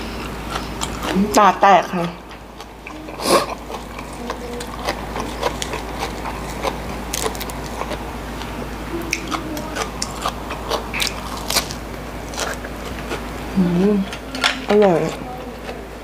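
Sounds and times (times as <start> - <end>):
chewing and crunching lettuce: 0.0 - 16.0
faint steady hum: 0.0 - 16.0
wet mouth clicks: 9.1 - 11.8.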